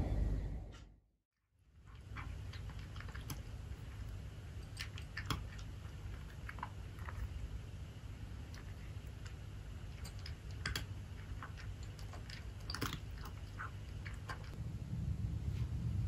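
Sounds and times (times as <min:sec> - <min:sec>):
low steady hum: 0:00.0 - 0:00.9, 0:01.6 - 0:16.0
faint clicks and crunching ticks: 0:01.8 - 0:07.6, 0:08.4 - 0:14.6.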